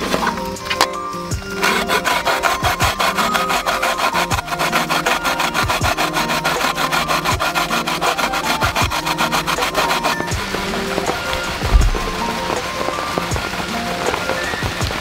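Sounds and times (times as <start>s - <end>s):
radish grated on plastic grater: 1.6s - 10.3s.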